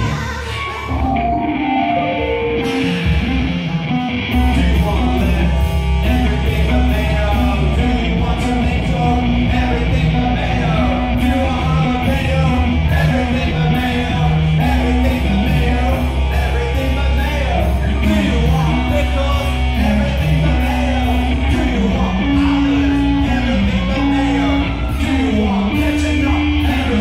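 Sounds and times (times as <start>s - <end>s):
bass line: 0.0s - 27.0s
loud rock music: 0.0s - 27.0s
singing and shouted vocals: 0.0s - 27.0s.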